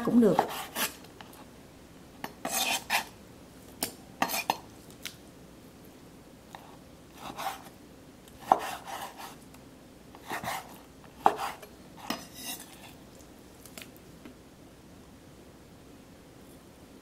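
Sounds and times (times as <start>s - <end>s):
knife scraping: 0.3s - 1.4s, 2.2s - 3.1s, 4.2s - 4.6s, 6.6s - 7.7s, 8.4s - 9.4s, 10.2s - 13.0s.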